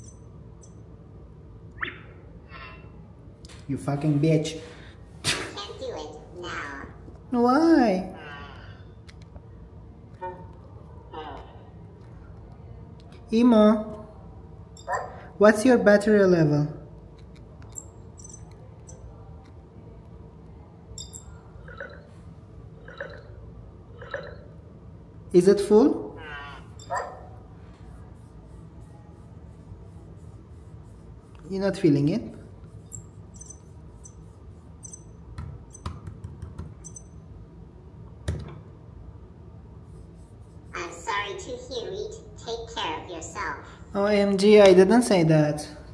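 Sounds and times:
short warbling electronic beeps: 0:01.8 - 0:02.9
hand tapping on plastic: 0:35.4 - 0:36.8.

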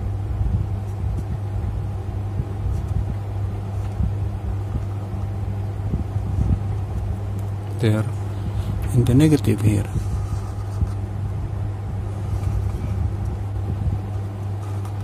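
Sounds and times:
steady low hum: 0:00.0 - 0:15.0
marker scratching on paper: 0:09.9 - 0:11.0.

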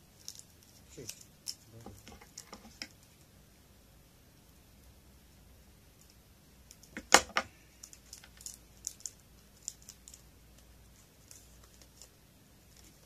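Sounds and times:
plastic packet crinkling: 0:07.8 - 0:10.3.

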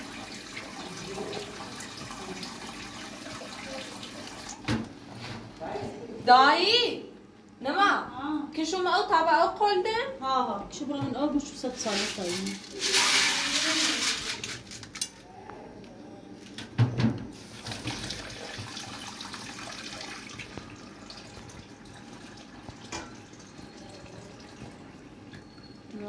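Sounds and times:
tap water running into a pot: 0:00.0 - 0:04.7, 0:12.6 - 0:14.1, 0:17.4 - 0:25.0
beans rattling into a metal pot: 0:11.8 - 0:15.0
metal pot clanking: 0:22.9 - 0:23.2.

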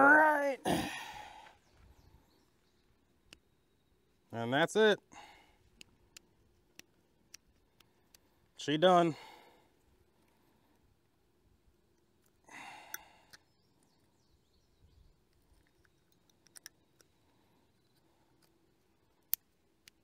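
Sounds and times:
breathy sigh: 0:00.6 - 0:01.6, 0:12.4 - 0:13.4.

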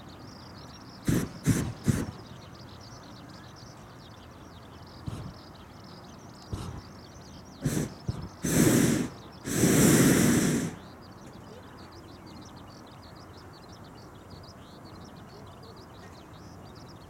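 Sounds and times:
propane burner firing: 0:01.1 - 0:02.2, 0:07.6 - 0:10.8.

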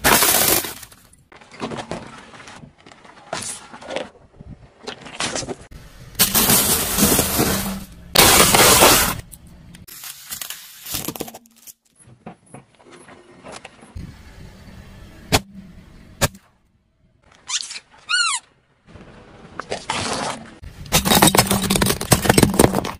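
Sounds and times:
short squeak: 0:17.4 - 0:18.5.

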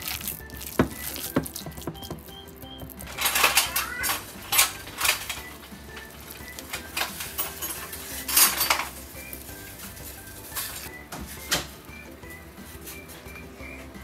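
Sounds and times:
faint background music: 0:00.0 - 0:14.0
utensils scraping dishes: 0:03.0 - 0:10.9.

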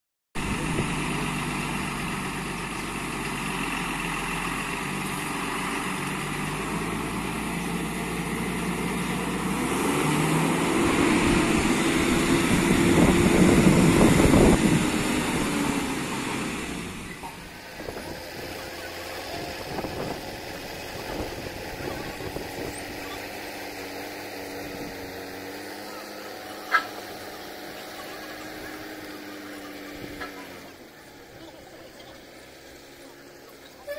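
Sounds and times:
diesel truck engine running: 0:00.4 - 0:33.9.

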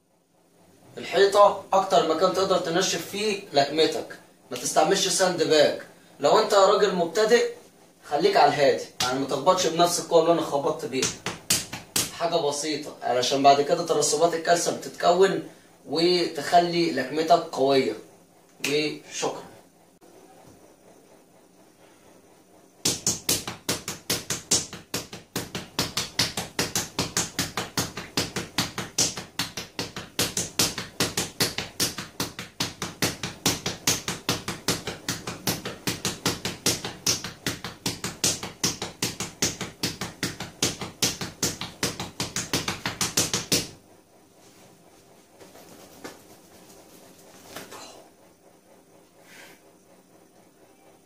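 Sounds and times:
fists punching a wall: 0:11.0 - 0:12.2, 0:22.8 - 0:43.8.

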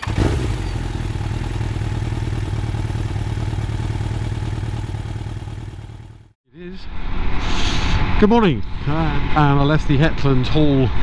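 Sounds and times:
motorcycle engine idling: 0:00.0 - 0:06.4.

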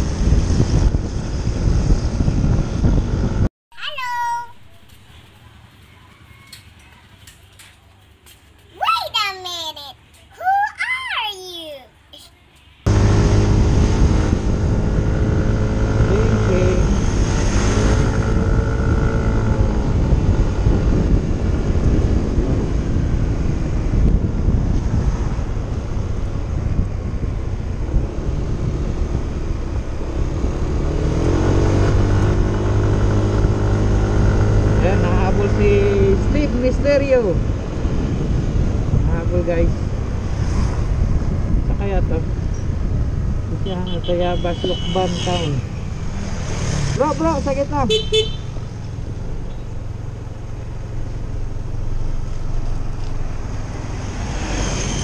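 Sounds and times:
wind rushing over microphone: 0:00.0 - 0:03.5, 0:12.8 - 0:55.0
motorcycle engine accelerating: 0:12.9 - 0:43.7.

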